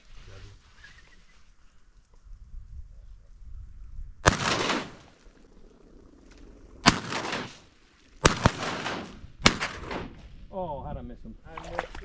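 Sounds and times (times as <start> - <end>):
shotgun shots with echo: 4.2 - 5.1, 6.8 - 7.6, 8.2 - 10.2.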